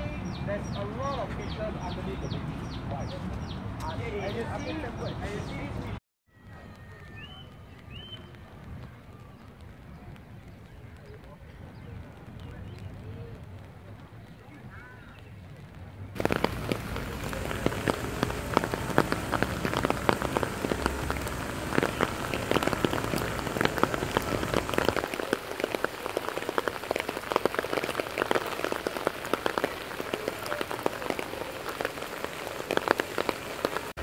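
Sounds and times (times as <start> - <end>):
rain drops hitting: 7.2 - 34.0
hiss of falling rain: 16.2 - 34.0.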